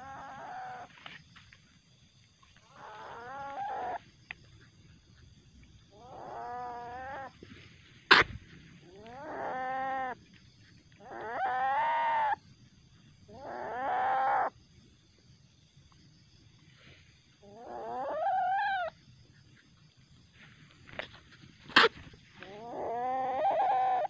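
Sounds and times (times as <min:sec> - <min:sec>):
civet calling: 0:00.0 - 0:01.1, 0:02.6 - 0:14.6, 0:17.3 - 0:19.7, 0:21.6 - 0:24.0.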